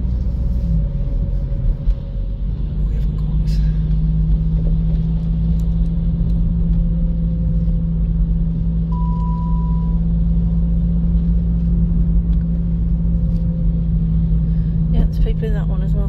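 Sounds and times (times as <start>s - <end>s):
car engine hum: 0.0s - 16.0s
short high beep: 8.9s - 10.1s.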